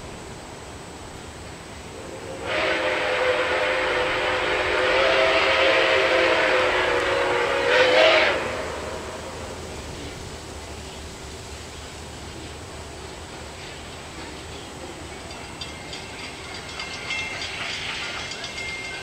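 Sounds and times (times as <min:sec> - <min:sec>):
steam hiss: 0:00.0 - 0:19.0
steam locomotive chime whistle: 0:01.9 - 0:09.6, 0:13.6 - 0:19.0.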